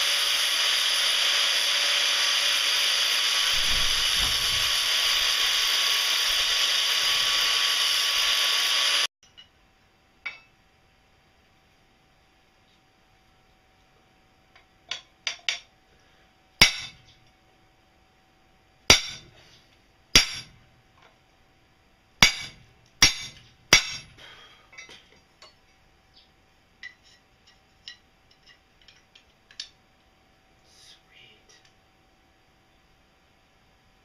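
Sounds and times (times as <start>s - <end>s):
hammer striking metal: 16.6s - 17.1s, 18.9s - 19.3s, 20.2s - 20.6s, 22.2s - 24.2s.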